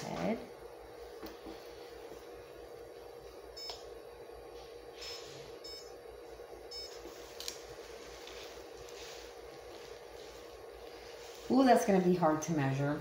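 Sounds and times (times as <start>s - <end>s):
steady low hum: 0.0s - 13.0s
short electronic beeps: 5.1s - 5.9s.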